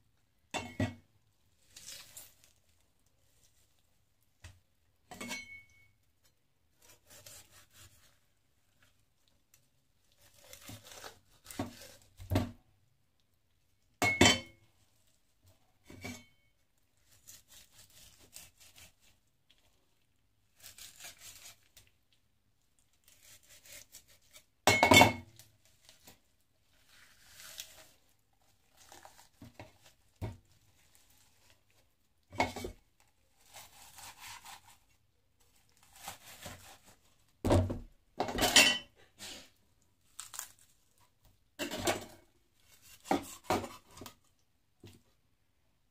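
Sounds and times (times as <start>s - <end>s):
knife on plastic chopping board: 10.3s - 12.4s, 35.9s - 36.9s, 41.6s - 44.2s
wet skin rustling: 25.7s - 31.9s.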